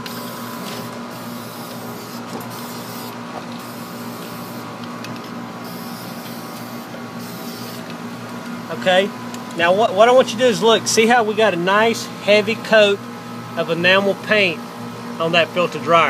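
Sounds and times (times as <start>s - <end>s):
steady low hum: 0.0s - 16.0s
spray paint can hissing: 1.1s - 4.7s, 5.6s - 7.8s.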